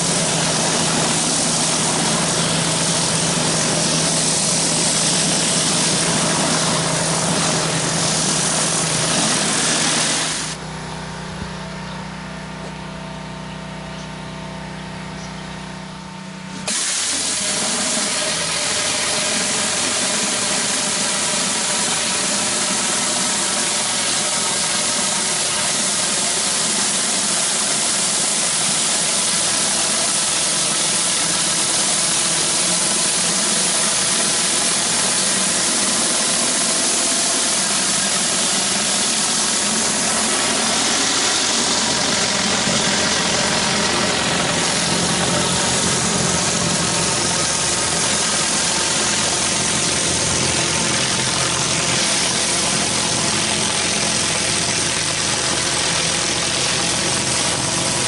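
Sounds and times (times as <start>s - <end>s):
water jet hissing on concrete: 0.0s - 10.6s, 16.5s - 58.0s
pressure washer engine running: 0.0s - 58.0s.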